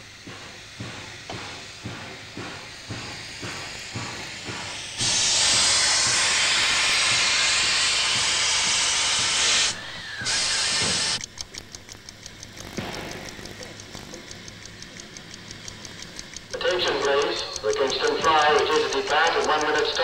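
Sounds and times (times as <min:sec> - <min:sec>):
steam hissing from locomotive: 0:00.0 - 0:11.2, 0:16.5 - 0:20.0
regular ticking: 0:00.0 - 0:20.0.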